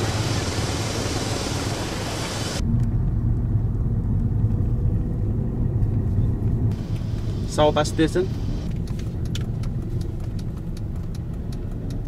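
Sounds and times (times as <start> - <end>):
street noise hiss: 0.0 - 2.6, 6.6 - 11.7
car cabin rumble: 2.6 - 12.0.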